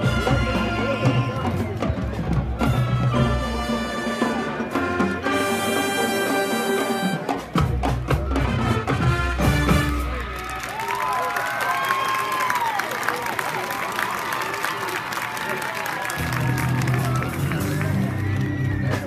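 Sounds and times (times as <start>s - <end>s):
brass horns: 0.0s - 10.6s
drums and percussion: 0.0s - 11.1s, 16.1s - 19.0s.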